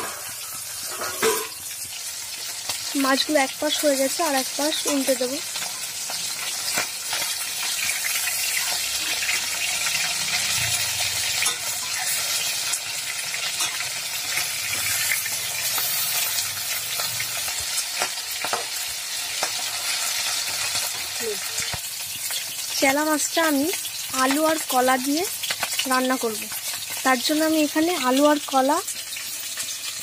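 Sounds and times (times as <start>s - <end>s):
metal spatula scraping a pan: 0.0s - 1.8s, 4.8s - 18.8s
fish sizzling in hot oil: 0.0s - 30.0s.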